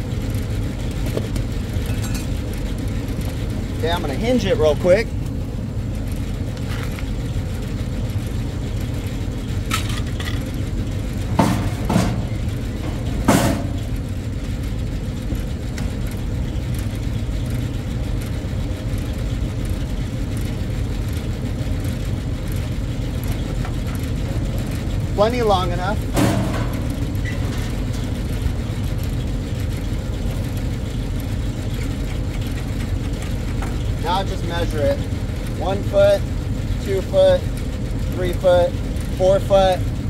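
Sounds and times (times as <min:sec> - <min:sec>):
steady low rumble: 0:00.0 - 0:40.0
sheet metal knocks and clanks: 0:11.2 - 0:14.0, 0:26.1 - 0:28.2.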